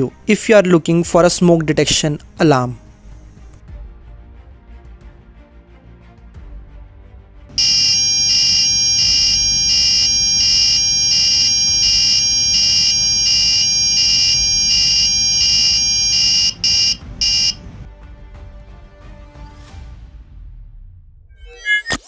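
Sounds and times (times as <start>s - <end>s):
high-pitched alarm tone: 7.6s - 17.6s
short alarm beeps: 7.6s - 17.6s.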